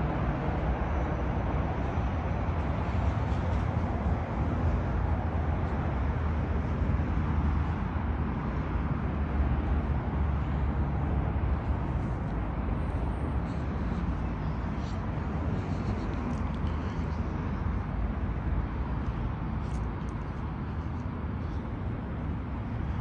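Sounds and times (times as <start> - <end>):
low outdoor rumble: 0.0 - 23.0.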